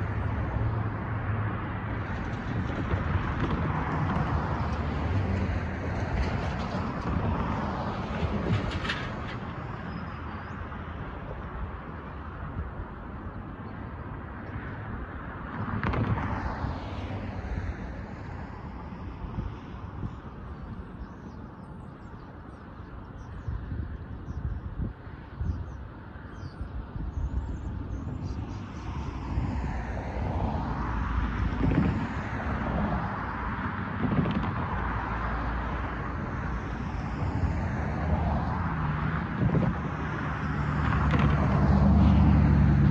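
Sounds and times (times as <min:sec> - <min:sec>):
cars driving past: 0:00.0 - 0:24.2, 0:24.8 - 0:42.9
road traffic: 0:00.0 - 0:42.9
wind rumble: 0:00.0 - 0:42.9.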